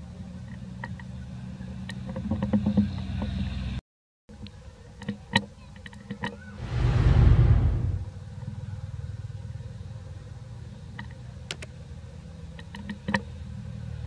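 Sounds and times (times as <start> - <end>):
engine hum: 0.0 - 3.8, 6.4 - 14.0
rush of noise: 6.5 - 8.1
sharp clicks: 11.5 - 11.7.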